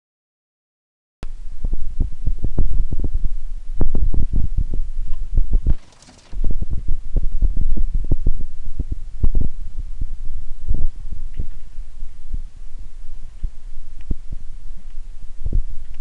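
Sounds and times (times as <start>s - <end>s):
microphone buffeting: 3.8s - 9.5s.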